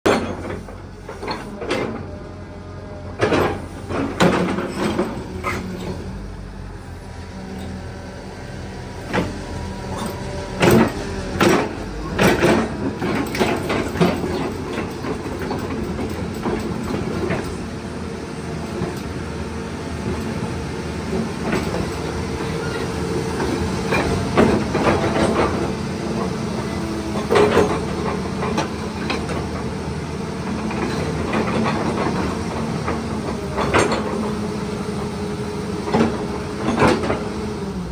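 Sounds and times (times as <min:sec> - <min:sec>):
excavator diesel engine running: 0:00.1 - 0:37.9
sharp metal knocks and clanks: 0:10.0 - 0:17.6.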